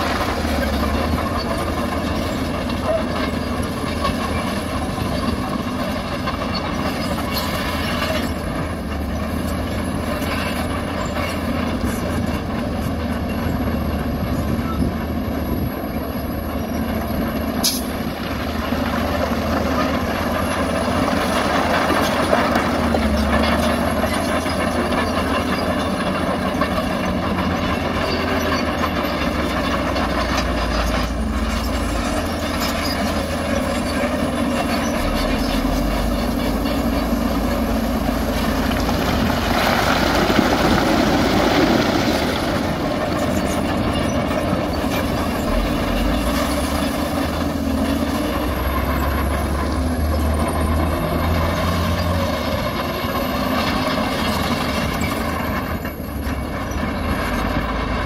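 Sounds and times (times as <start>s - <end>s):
diesel engine running: 0.0s - 58.0s
steel tracks clanking and squealing: 0.0s - 58.0s.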